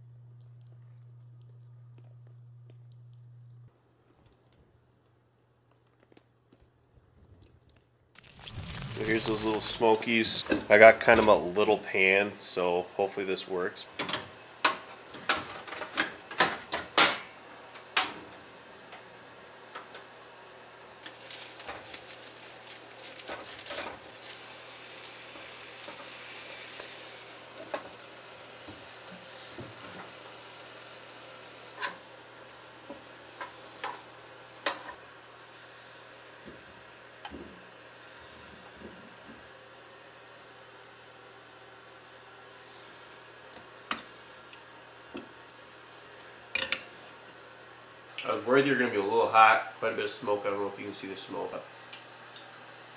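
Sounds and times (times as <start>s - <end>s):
sausages sizzling in a pan: 8.2s - 10.1s, 21.0s - 34.6s.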